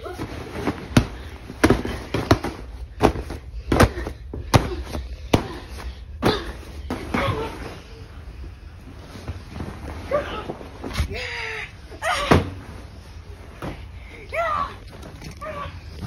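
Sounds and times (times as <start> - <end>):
hands smacking vinyl beanbag: 0.0 - 5.6.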